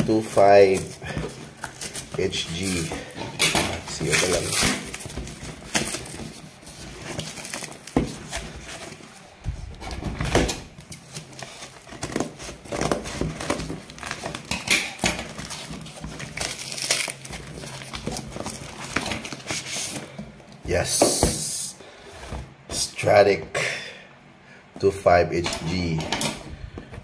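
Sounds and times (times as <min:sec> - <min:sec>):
cardboard parcel tearing and crumpling: 0:03.8 - 0:20.1.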